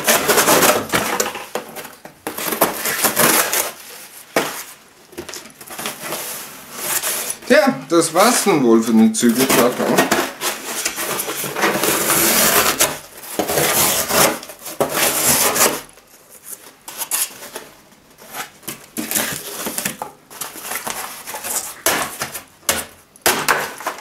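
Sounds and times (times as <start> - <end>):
scraping and rustling: 0.0 - 7.6, 9.2 - 22.5
knife slicing through cardboard: 9.4 - 15.9.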